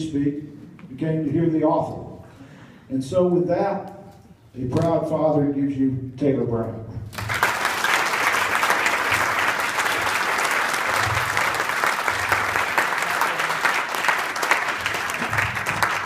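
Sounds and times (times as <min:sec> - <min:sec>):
crowd applauding: 0:07.2 - 0:16.0.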